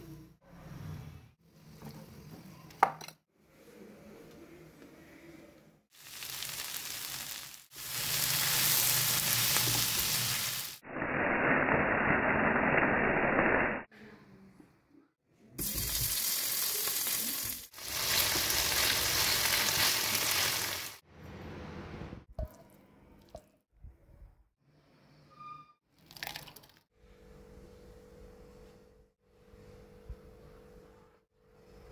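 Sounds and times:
food sizzling in hot oil: 5.9 - 13.7, 15.6 - 21.0.

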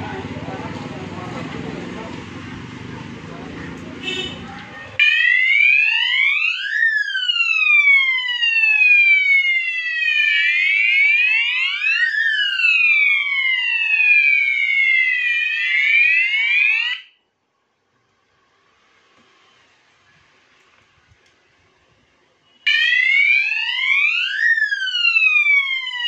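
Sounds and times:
fire alarm siren wailing: 5.0 - 17.2, 22.6 - 26.0.

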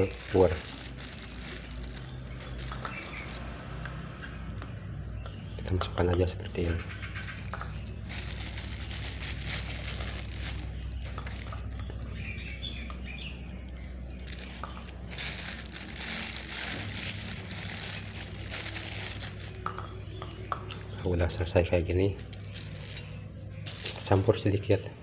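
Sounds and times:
plastic bag crinkling: 0.0 - 3.5, 7.2 - 12.4, 14.0 - 20.2, 22.1 - 24.2.

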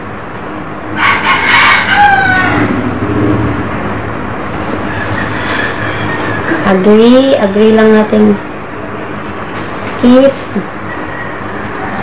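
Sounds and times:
steady low hum: 0.0 - 12.0
loud animal call: 1.0 - 3.0, 3.6 - 6.8.

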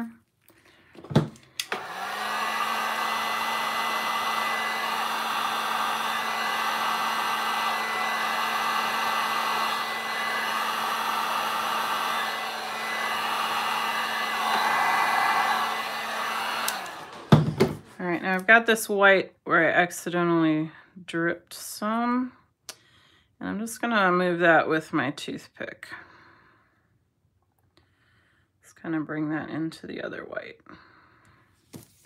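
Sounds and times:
heat gun motor hum: 1.6 - 17.5.

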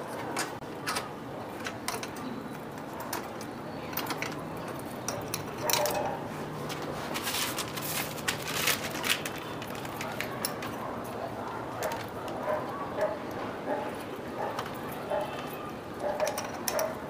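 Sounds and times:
brake cable clicking and rattling: 16.0 - 17.0.

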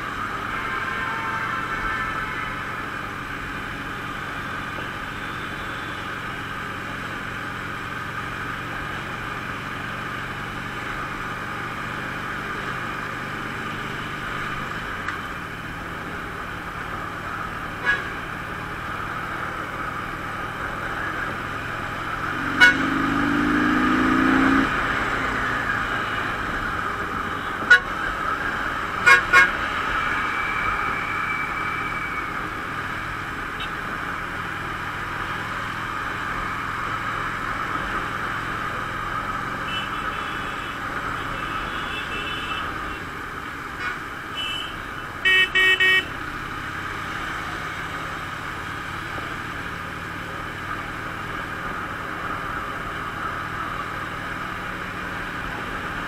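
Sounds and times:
vehicle horn: 0.3 - 2.9, 17.8 - 18.2, 22.3 - 23.4, 27.2 - 28.0, 29.0 - 29.6, 39.6 - 43.0, 44.3 - 46.1
motorcycle engine running: 20.4 - 26.0.

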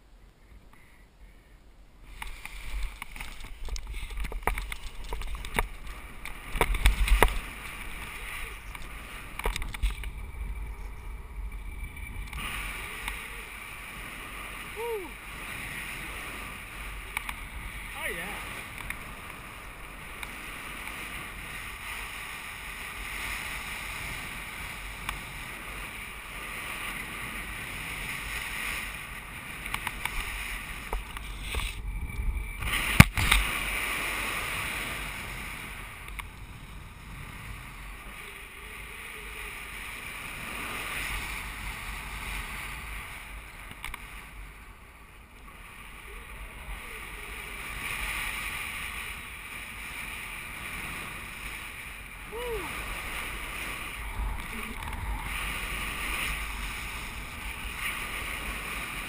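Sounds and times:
crackles: 0.0 - 59.0
wind rushing over microphone: 2.0 - 59.0.

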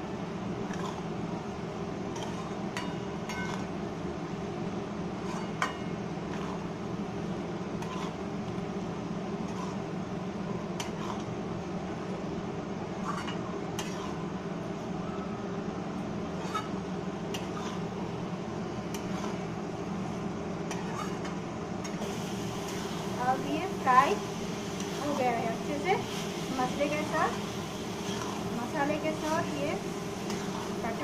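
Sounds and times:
steady low hum: 0.0 - 31.0
metal spatula scraping a pan: 0.7 - 1.1, 5.2 - 5.6, 7.8 - 8.2, 9.4 - 9.9, 10.8 - 11.3, 13.0 - 14.2, 16.4 - 16.8, 17.4 - 17.9, 18.9 - 19.4, 20.7 - 21.3, 24.8 - 31.0.

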